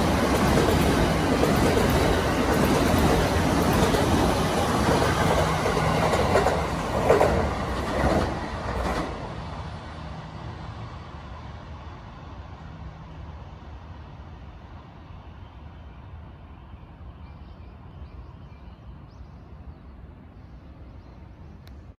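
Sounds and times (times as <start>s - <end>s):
train wheels rumbling on rail: 0.0s - 16.7s.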